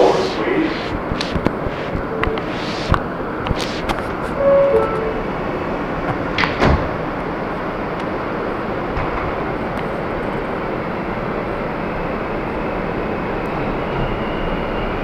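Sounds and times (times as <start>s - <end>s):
sliding doors shutting: 0.0s - 5.4s
train car running noise: 0.0s - 15.0s
two-note door chime: 4.4s - 5.2s.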